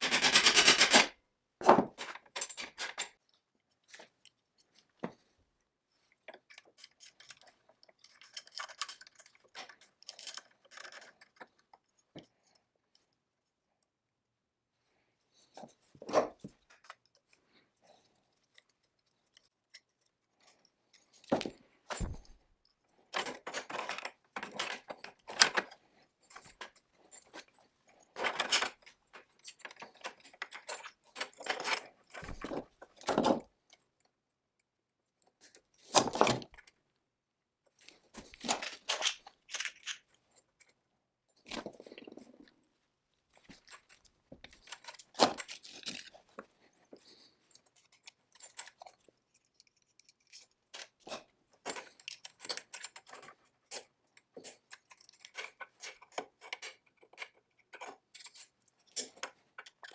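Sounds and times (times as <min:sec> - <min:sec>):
metal parts clinking and rattling: 0:00.0 - 0:01.1, 0:01.9 - 0:03.2, 0:06.3 - 0:12.1, 0:23.1 - 0:33.4, 0:37.8 - 0:40.2, 0:43.4 - 0:59.9.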